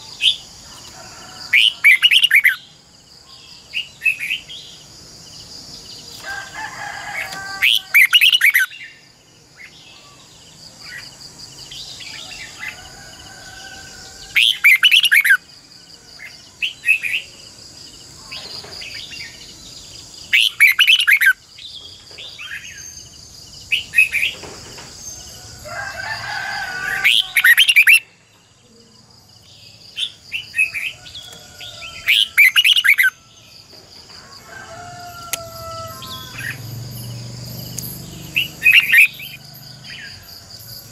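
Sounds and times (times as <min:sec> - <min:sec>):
bulbul singing: 0:18.3 - 0:23.1, 0:35.2 - 0:40.9.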